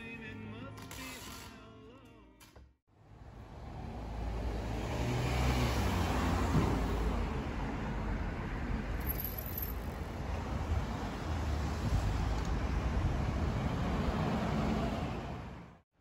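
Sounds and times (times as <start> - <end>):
road traffic noise: 2.9 - 15.8
car driving past: 3.4 - 7.4.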